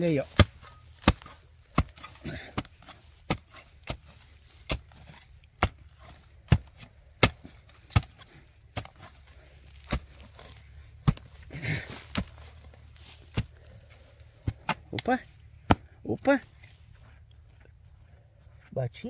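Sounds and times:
hoe thudding into soil: 0.0 - 15.9.

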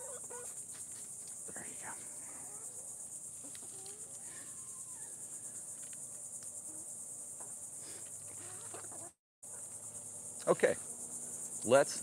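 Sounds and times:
hen clucking: 0.0 - 0.5, 3.4 - 5.0, 8.2 - 9.6
insect chorus: 0.0 - 12.0.

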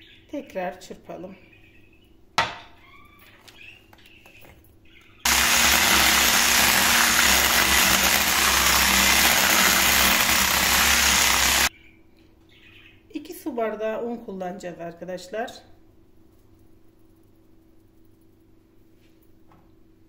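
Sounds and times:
electric hand mixer running: 5.3 - 11.7.

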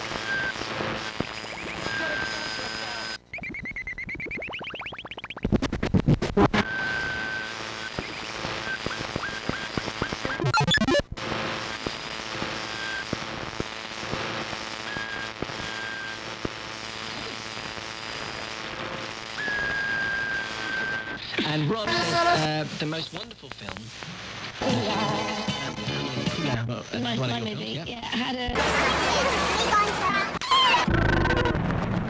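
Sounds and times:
snatches of radio music: 0.0 - 3.7, 4.3 - 27.5
rising whistle: 19.4 - 21.1
steady whistle tones: 19.4 - 21.2.

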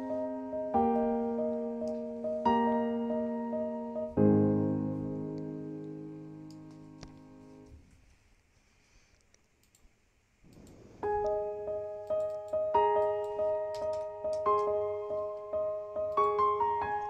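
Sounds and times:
piano music: 0.0 - 7.7, 11.0 - 17.0
faint clicks: 9.1 - 11.4.

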